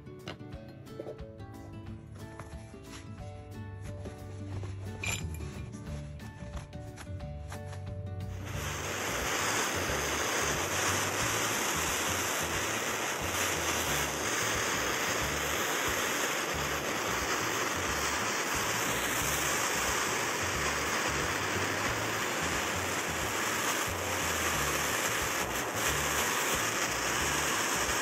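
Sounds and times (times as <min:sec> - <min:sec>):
gas torch flame hissing: 0:07.7 - 0:28.0.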